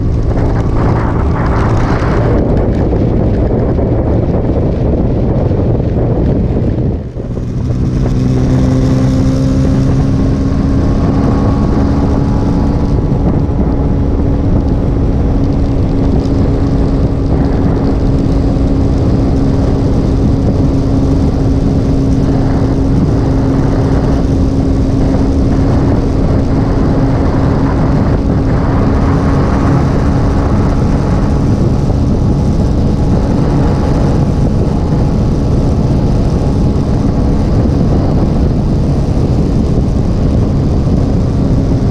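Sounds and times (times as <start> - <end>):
motorcycle engine cruising: 0.0 - 41.9
wind rushing over microphone: 0.0 - 41.9.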